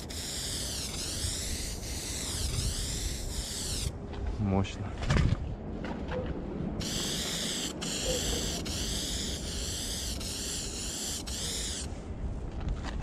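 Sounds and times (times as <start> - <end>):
spray paint can hissing: 0.0 - 3.9, 6.8 - 11.9.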